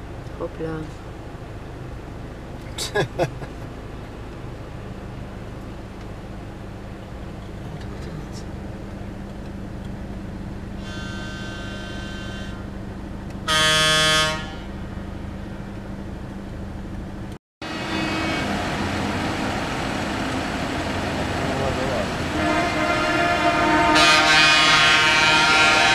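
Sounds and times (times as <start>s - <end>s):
low engine hum: 0.0s - 23.7s
rumbling traffic noise: 0.0s - 25.9s
vehicle horns honking: 10.8s - 12.7s, 13.4s - 15.0s, 17.7s - 18.7s, 22.3s - 25.9s.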